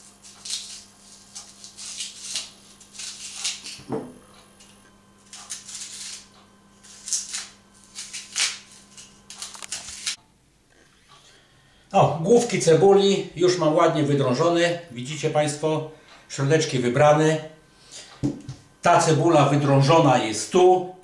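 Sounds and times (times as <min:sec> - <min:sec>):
knife scraping and cutting onion: 0:00.0 - 0:10.2.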